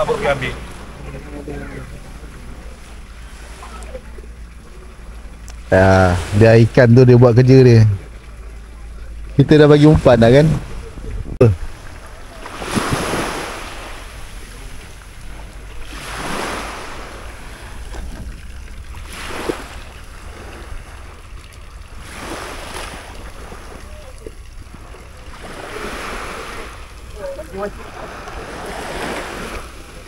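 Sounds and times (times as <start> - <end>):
small waves on sandy beach: 0.0 - 30.0
wind on microphone: 9.9 - 12.0.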